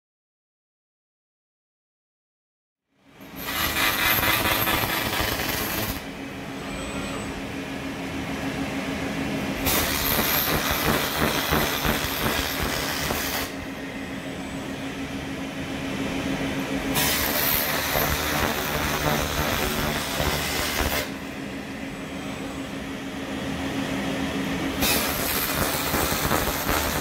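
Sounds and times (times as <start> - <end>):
steady low hum: 3.1 - 27.0
laser beam hissing: 3.4 - 6.1, 9.6 - 13.7, 17.0 - 21.2, 24.8 - 27.0.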